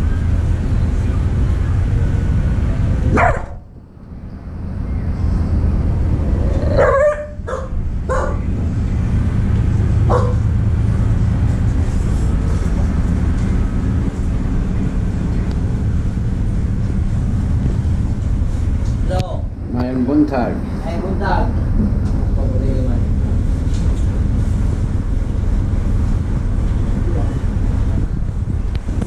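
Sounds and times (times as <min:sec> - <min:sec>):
ship engine drone: 0:00.0 - 0:29.0
dog barking: 0:03.1 - 0:03.6, 0:06.7 - 0:08.4, 0:10.1 - 0:10.4.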